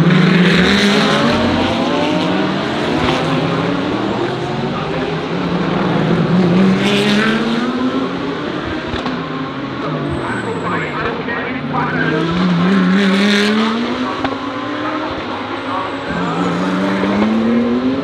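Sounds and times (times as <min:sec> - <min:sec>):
race car engines: 0:00.0 - 0:18.0.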